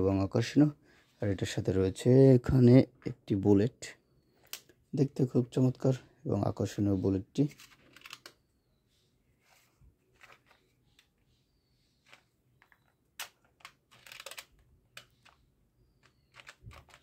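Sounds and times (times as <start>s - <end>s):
toy gun plastic clicks and rattles: 13.2s - 15.4s.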